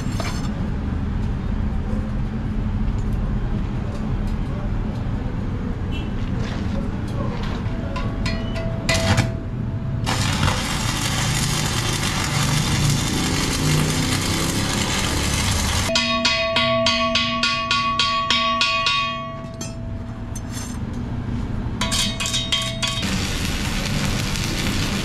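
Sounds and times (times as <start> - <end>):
hand tool rapping ringing steel: 8.0 - 9.1, 15.9 - 20.8, 21.8 - 23.0
arc welding crackling and sizzling: 10.0 - 15.9, 22.9 - 25.0.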